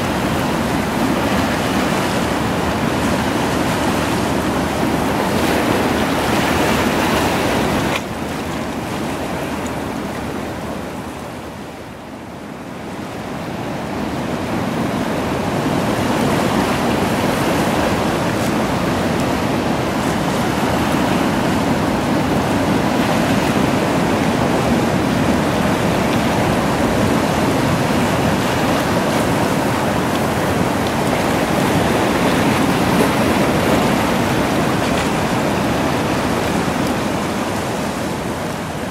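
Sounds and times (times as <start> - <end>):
surf washing over rocks: 0.0 - 38.9.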